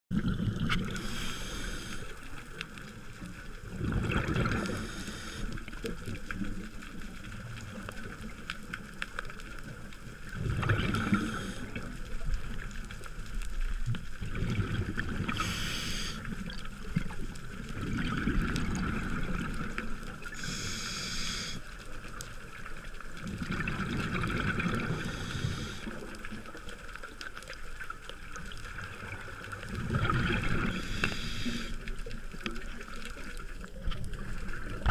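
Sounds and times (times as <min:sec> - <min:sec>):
exhaled air bubbling underwater: 0:00.1 - 0:34.9
regulator inhale hiss: 0:00.9 - 0:02.4, 0:04.6 - 0:05.8, 0:11.0 - 0:12.0, 0:15.3 - 0:16.4, 0:20.3 - 0:21.8, 0:24.9 - 0:26.2, 0:30.7 - 0:32.0.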